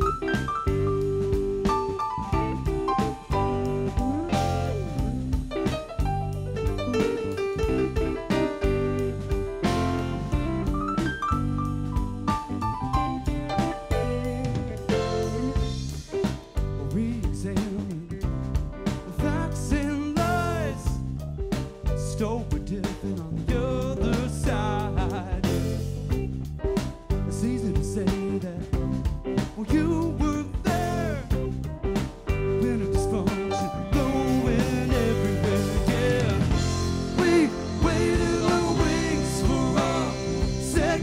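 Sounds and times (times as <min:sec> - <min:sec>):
band playing live: 0:00.0 - 0:41.0
cymbals: 0:34.0 - 0:41.0.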